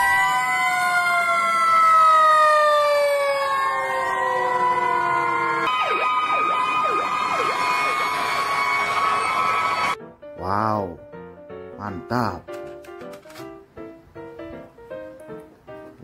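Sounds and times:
fire engine sirens wailing: 0:00.0 - 0:10.0.

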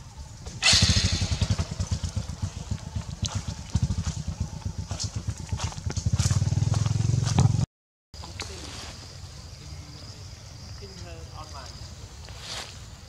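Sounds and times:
small engine idling: 0:00.6 - 0:07.6.

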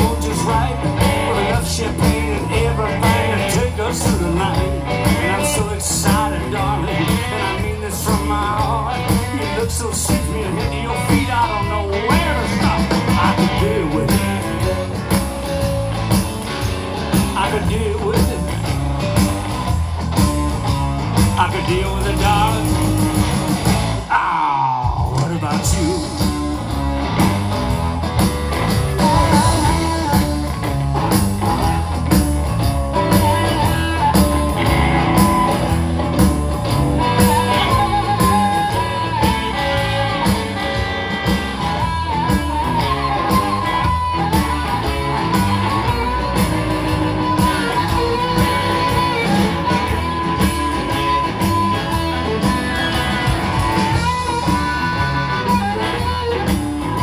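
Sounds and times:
bass guitar: 0:00.0 - 0:57.0
drums: 0:00.0 - 0:57.0
electric guitar: 0:00.0 - 0:57.0
harmonica solo with bending notes: 0:25.9 - 0:57.0.

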